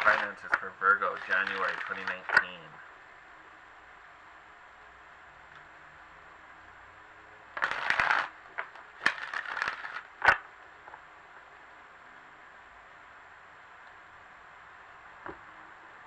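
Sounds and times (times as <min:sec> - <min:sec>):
cards clicking: 0:00.0 - 0:02.6, 0:07.6 - 0:10.4
cards riffle-shuffling: 0:00.0 - 0:02.6, 0:07.6 - 0:10.4
sharp snap of cards: 0:01.3 - 0:02.6, 0:07.6 - 0:10.5.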